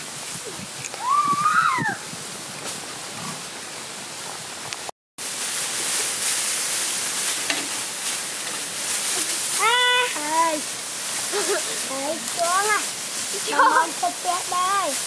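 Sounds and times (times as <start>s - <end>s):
pot boiling with bubbling hiss: 0.0s - 15.0s
straw rustling: 5.2s - 15.0s.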